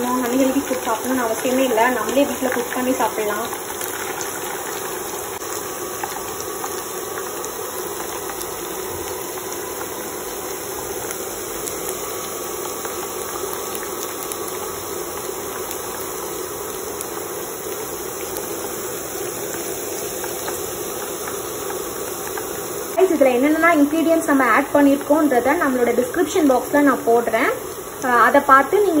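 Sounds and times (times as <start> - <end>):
chicken deep-frying in oil: 0.0 - 29.0.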